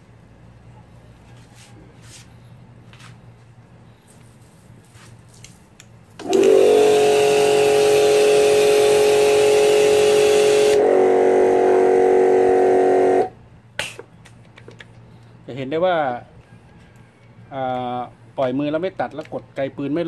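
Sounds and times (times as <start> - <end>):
pressure washer motor humming: 6.2 - 13.3
water jet hissing: 6.2 - 13.3.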